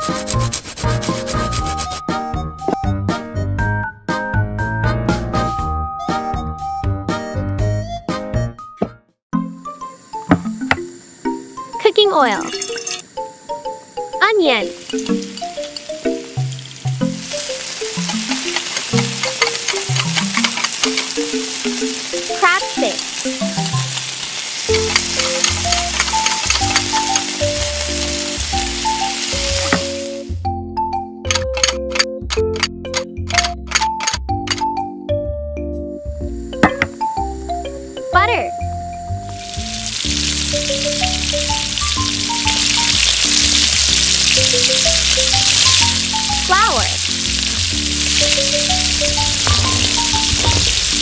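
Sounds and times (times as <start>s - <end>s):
food sizzling in hot oil: 9.8s - 30.3s, 39.1s - 51.0s
simple tune with bass notes: 24.7s - 51.0s
plucked melody music: 36.5s - 51.0s.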